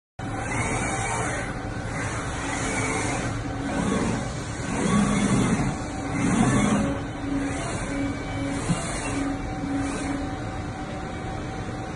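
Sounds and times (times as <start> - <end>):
low machine whine: 0.2 - 11.9
machine mechanical hum: 0.2 - 11.9.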